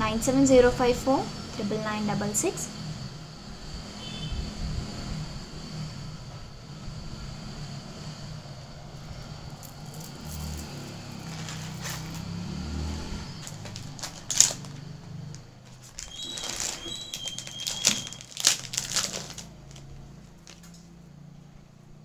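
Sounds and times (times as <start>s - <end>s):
packaging wrapper crinkling: 9.6s - 12.2s, 13.4s - 20.9s.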